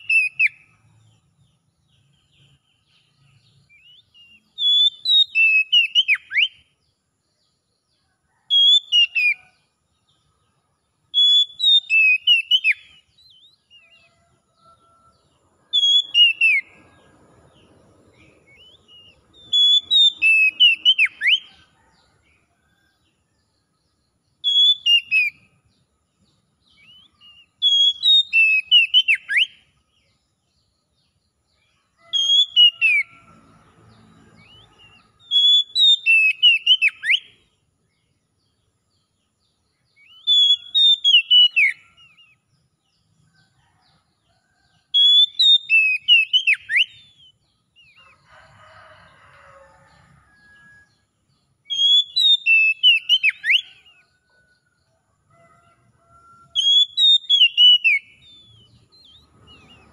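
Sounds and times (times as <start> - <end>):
bird singing whistled notes: 0.0 - 7.5, 8.3 - 9.6, 11.1 - 14.3, 15.6 - 17.0, 17.6 - 21.6, 24.0 - 25.6, 26.3 - 30.2, 32.0 - 33.2, 34.4 - 37.5, 39.5 - 42.5, 45.0 - 48.1, 51.6 - 54.2, 56.6 - 59.9.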